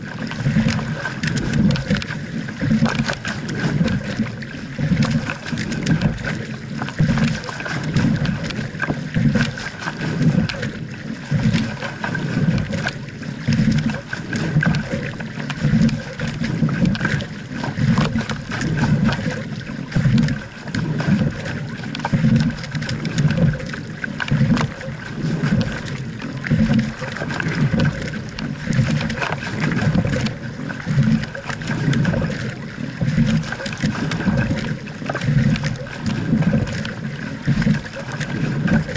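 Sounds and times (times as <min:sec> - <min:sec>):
oar and rigger clicks: 0:00.0 - 0:38.9
oars splashing: 0:00.0 - 0:38.9
water rushing along hull: 0:00.0 - 0:38.9.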